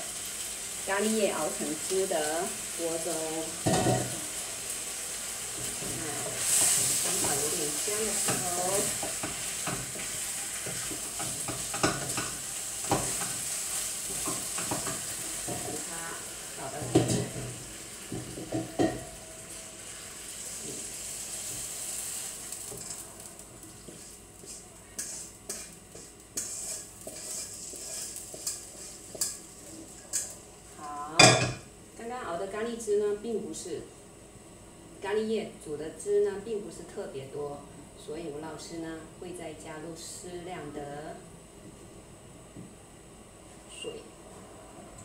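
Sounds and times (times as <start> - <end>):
chicken sizzling in wok: 0.0 - 33.8
spatula scraping pan: 23.8 - 30.4.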